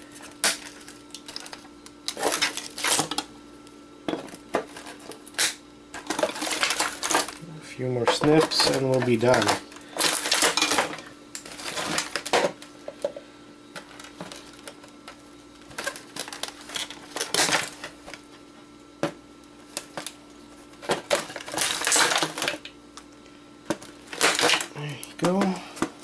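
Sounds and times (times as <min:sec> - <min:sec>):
plastic rattling: 0:08.0 - 0:12.6.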